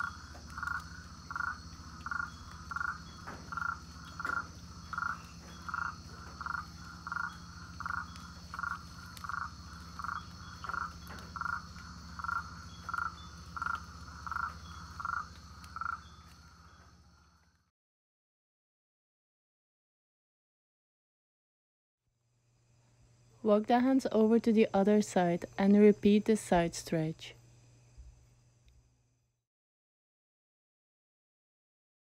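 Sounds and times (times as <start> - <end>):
frog calling: 0.0 - 17.6
high insect hum: 0.0 - 17.7, 22.2 - 29.4.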